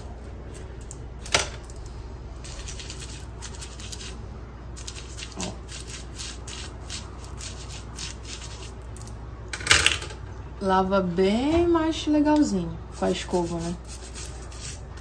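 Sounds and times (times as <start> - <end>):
toothbrush scrubbing: 2.4 - 4.2, 4.8 - 9.1, 12.9 - 15.0.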